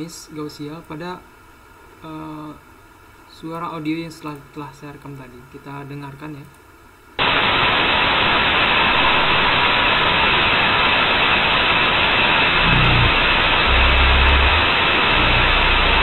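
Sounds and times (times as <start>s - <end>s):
loud white noise hiss: 0.0s - 16.0s
low sound: 8.1s - 16.0s.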